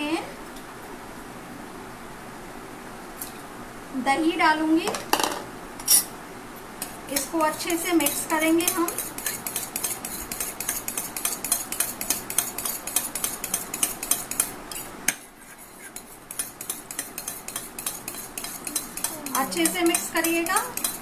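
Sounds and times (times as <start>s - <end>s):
spoon whisking in glass bowl: 6.8s - 21.0s.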